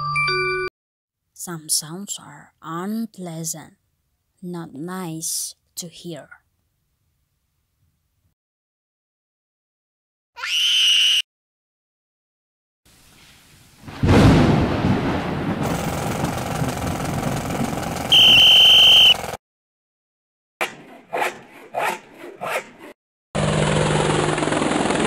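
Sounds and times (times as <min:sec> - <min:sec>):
thunderclap with rolling rumble: 0:13.8 - 0:18.4
whistle blast: 0:18.1 - 0:19.2
handsaw strokes through wood: 0:20.6 - 0:23.0.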